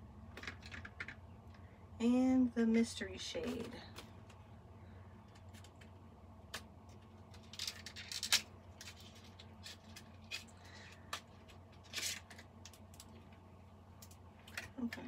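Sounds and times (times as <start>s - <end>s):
low hum: 0.0s - 15.0s
packaging clicks and crinkles: 5.3s - 13.2s.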